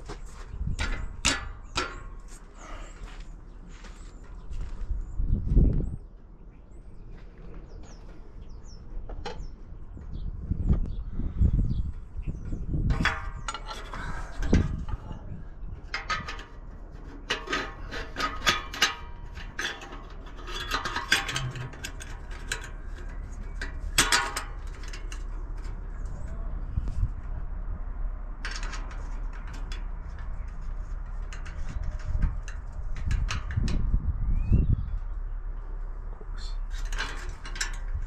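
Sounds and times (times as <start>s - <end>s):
metal clinking and clattering: 15.9s - 26.2s, 36.6s - 38.0s.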